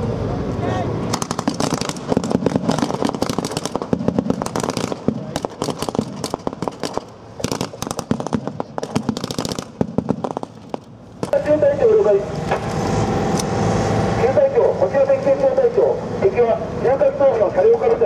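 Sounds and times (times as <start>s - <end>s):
rifles and machine guns firing: 1.1s - 11.5s.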